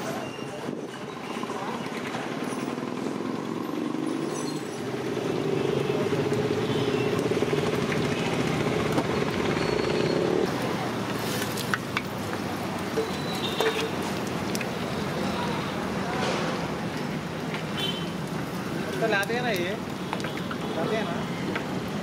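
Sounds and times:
food frying in hot oil: 10.5s - 22.0s.

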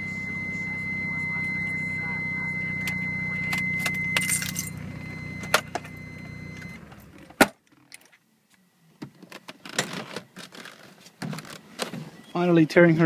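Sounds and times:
steady high whine: 0.0s - 7.3s.

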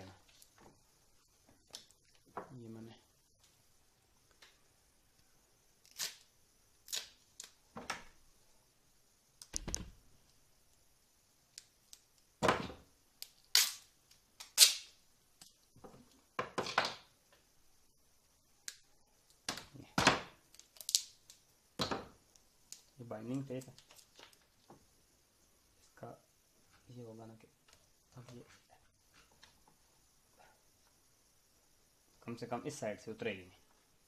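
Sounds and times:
tape tearing off roll: 5.8s - 7.6s, 13.4s - 14.9s.

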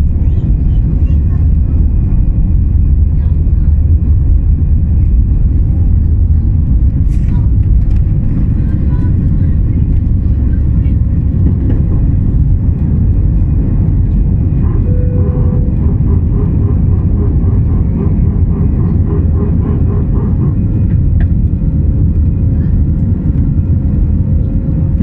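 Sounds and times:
aircraft cabin engine roar: 0.0s - 25.0s.

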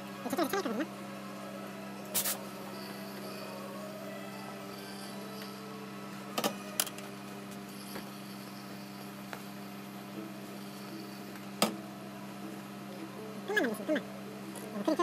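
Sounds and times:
steam iron humming: 2.0s - 11.7s.

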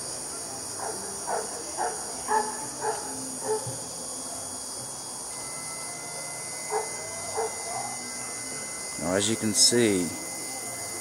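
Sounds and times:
crickets chirping: 0.0s - 11.0s
faint steady high tone: 2.6s - 11.0s.

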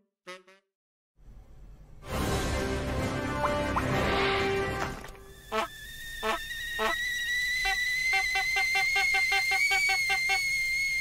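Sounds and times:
wavering whistle tone: 5.3s - 11.0s.

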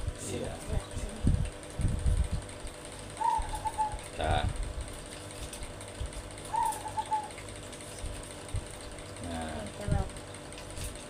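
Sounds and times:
dove cooing: 3.2s - 4.1s, 6.5s - 7.5s.

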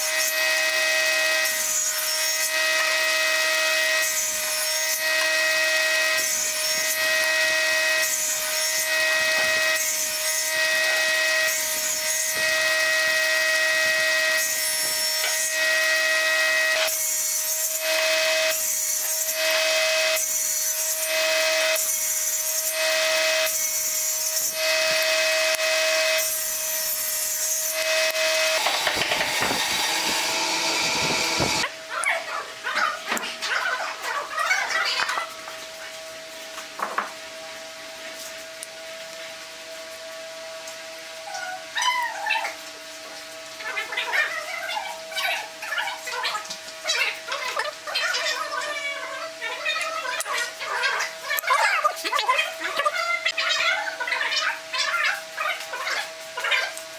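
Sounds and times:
saw cutting wood pieces: 0.0s - 31.7s
table saw blade whine: 0.0s - 31.7s.

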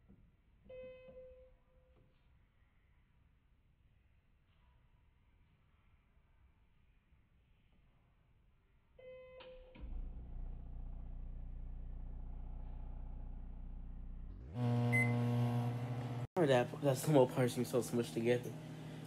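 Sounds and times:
microwave running hum: 9.8s - 19.0s
microwave keypad beeping: 14.8s - 15.3s.

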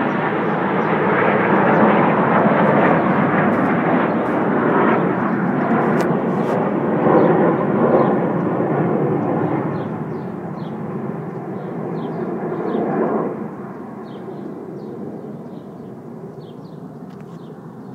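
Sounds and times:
jet aircraft rushing: 0.0s - 17.9s
small birds chirping: 9.2s - 17.9s.

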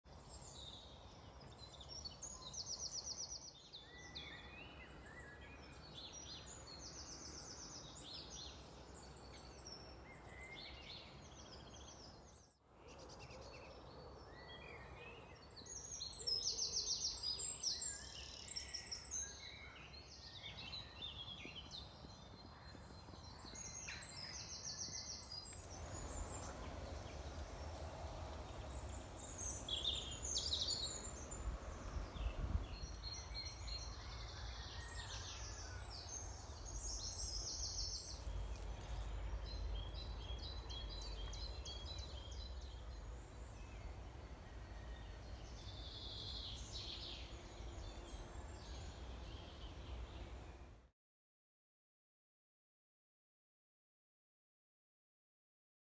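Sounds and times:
songbirds singing: 0.1s - 50.8s
faint low background rumble: 25.5s - 34.0s.

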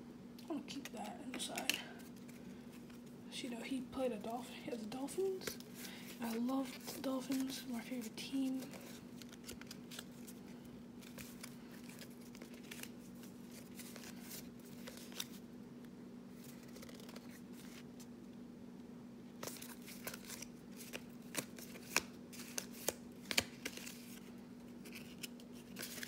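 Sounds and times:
faint low hum: 0.0s - 26.0s
trading cards clicking and sliding: 5.2s - 10.4s.

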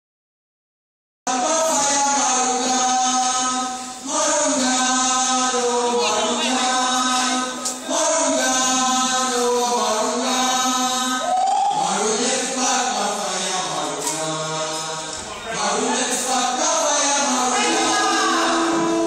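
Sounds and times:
group of voices singing: 1.3s - 19.0s.

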